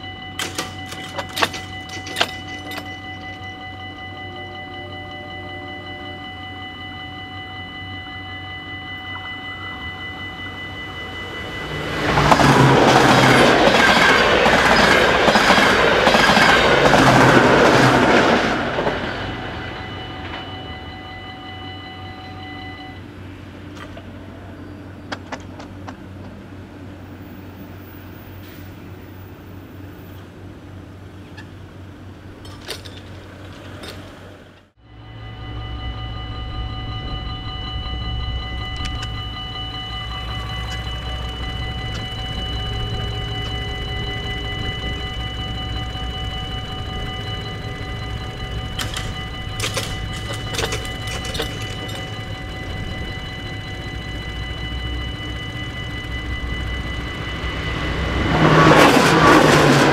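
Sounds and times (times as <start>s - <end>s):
level crossing bell ringing: 0.0s - 25.0s, 34.8s - 59.9s
steady low hum: 34.8s - 59.9s.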